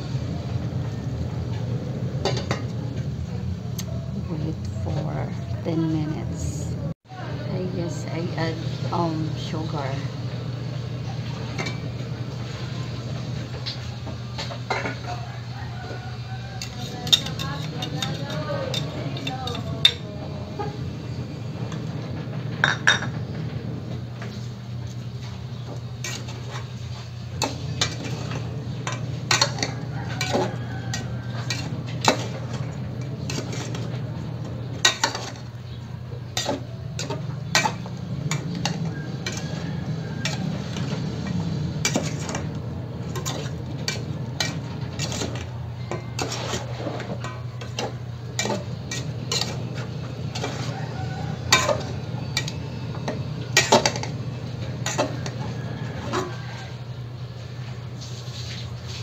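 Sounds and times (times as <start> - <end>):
metal ladle scraping a pot: 16.4 - 20.0, 25.5 - 56.8.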